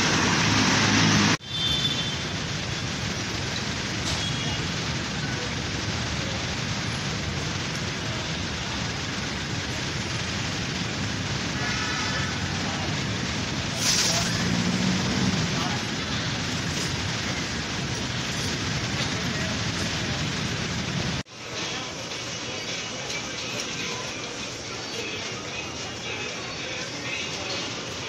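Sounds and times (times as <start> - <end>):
heavy street traffic: 0.0 - 28.0
short loud hiss: 13.7 - 15.2
crowd with faint voices: 21.2 - 28.0.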